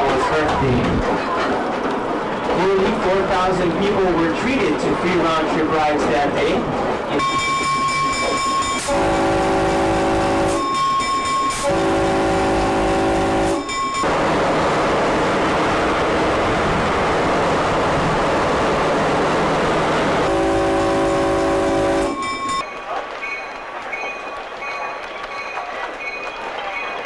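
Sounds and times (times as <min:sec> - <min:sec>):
train rumbling over track: 0:00.0 - 0:27.0
locomotive air horn blasts: 0:08.7 - 0:14.2, 0:20.1 - 0:22.6
higher single horn tone: 0:08.8 - 0:14.1, 0:20.2 - 0:22.6.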